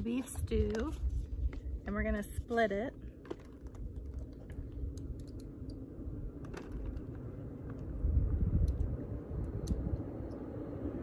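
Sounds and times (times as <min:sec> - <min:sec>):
low rumble: 0:00.0 - 0:11.0
camp gear handled: 0:02.9 - 0:04.7.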